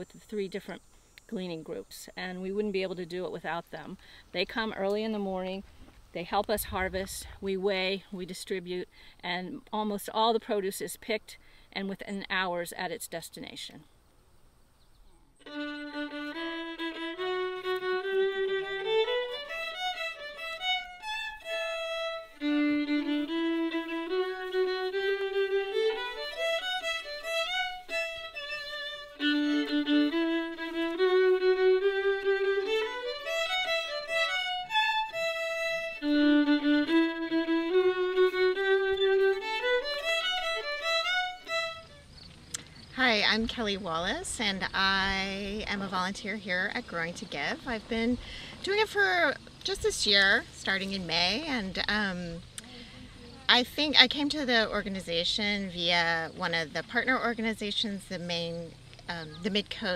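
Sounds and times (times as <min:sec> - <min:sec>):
two violins playing a tune: 0:15.4 - 0:42.0.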